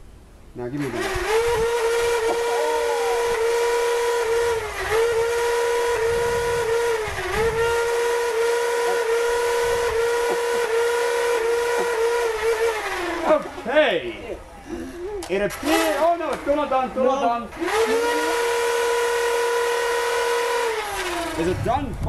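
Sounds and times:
toy blaster flywheels whining: 0:00.8 - 0:13.4, 0:17.5 - 0:21.6.

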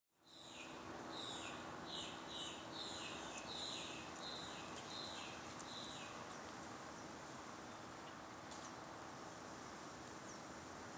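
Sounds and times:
outdoor background noise: 0:00.1 - 0:10.9.

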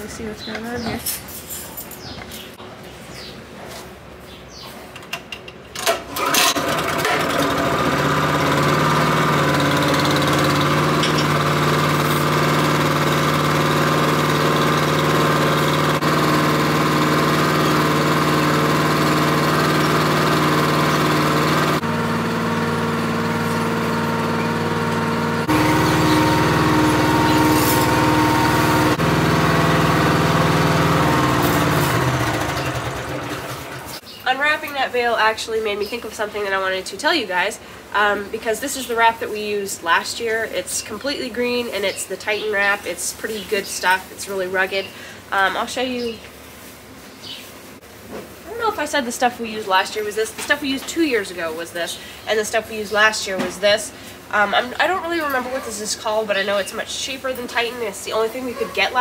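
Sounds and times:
small gasoline engine running: 0:05.8 - 0:34.0.

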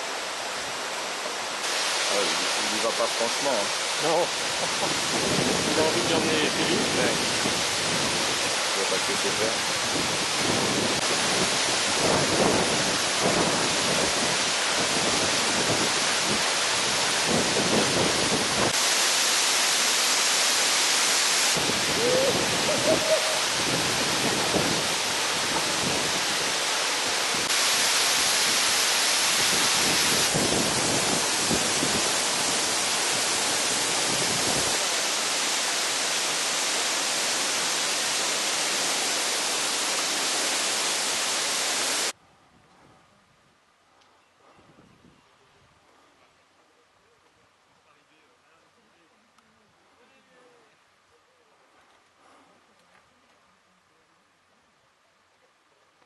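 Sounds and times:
loud rushing hiss: 0:00.0 - 0:42.2.

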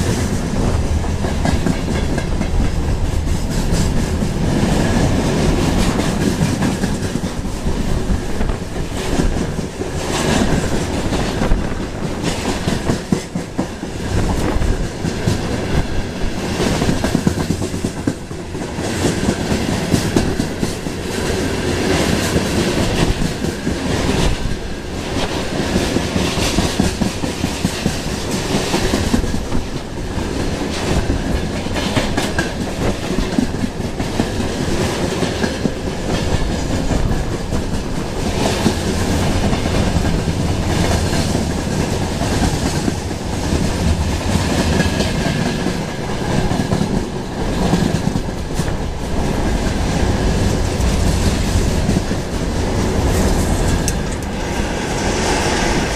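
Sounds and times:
freight train wheels rumbling: 0:00.0 - 0:55.9.

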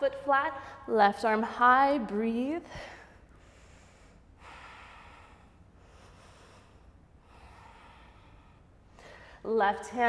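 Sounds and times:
woman breathing slowly: 0:02.6 - 0:09.5.

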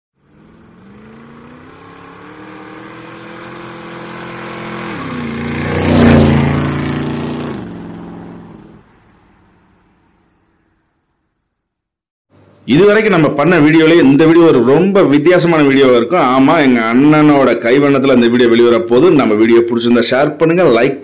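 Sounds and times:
motorcycle passing by: 0:00.2 - 0:11.0.

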